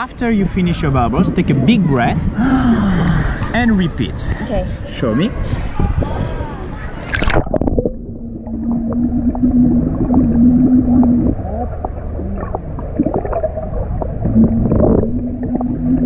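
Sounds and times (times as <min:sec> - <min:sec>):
steady low hum: 0:00.0 - 0:16.0
underwater gurgles and clicks: 0:05.5 - 0:16.0
splash into water: 0:07.0 - 0:07.8
underwater bubbles blowing: 0:07.0 - 0:16.0.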